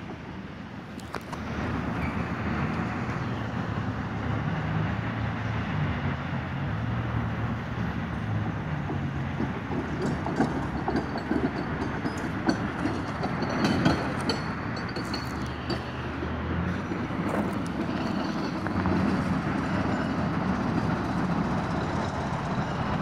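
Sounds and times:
truck engine humming: 0:00.0 - 0:23.0
guide wheels clicking on rails: 0:07.4 - 0:23.0.

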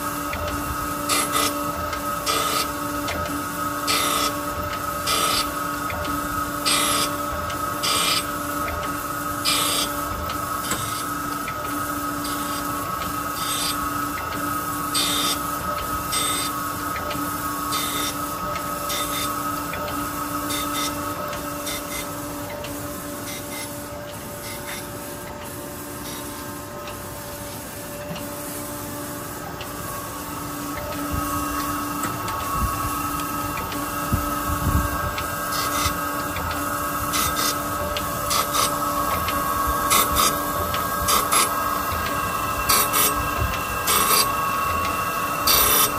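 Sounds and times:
grinder machine hum: 0:00.0 - 0:45.9
grinding hiss: 0:30.0 - 0:45.9.

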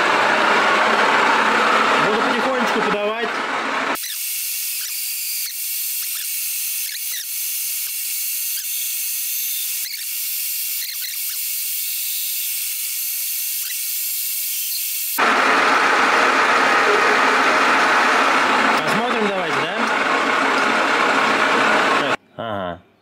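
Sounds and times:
hole saw cutting metal: 0:03.9 - 0:15.2
short squeals: 0:04.0 - 0:12.6.

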